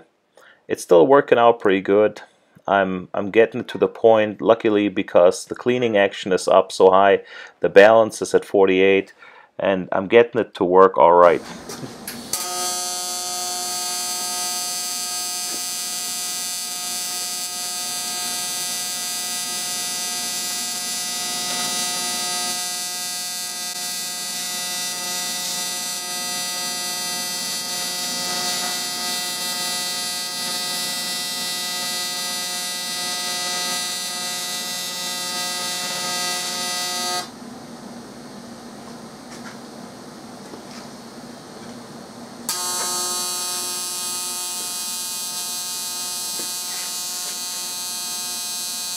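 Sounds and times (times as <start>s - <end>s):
welding arc buzzing: 11.2s - 37.4s, 42.5s - 48.9s.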